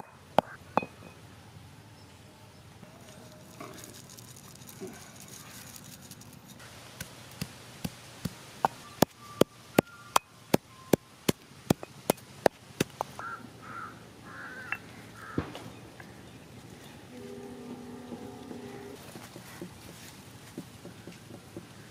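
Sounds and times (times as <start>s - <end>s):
bird calls: 0.0s - 4.1s, 8.6s - 12.4s, 13.0s - 21.9s
stone pestle pounding in mortar: 11.3s - 12.9s.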